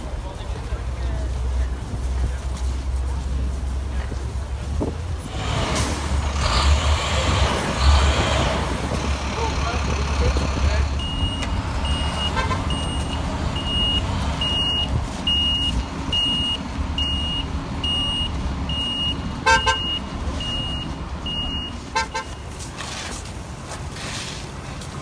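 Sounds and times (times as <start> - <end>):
street traffic rumble: 0.0 - 25.0
car horn honking: 11.9 - 13.1, 19.4 - 20.8, 21.6 - 22.5.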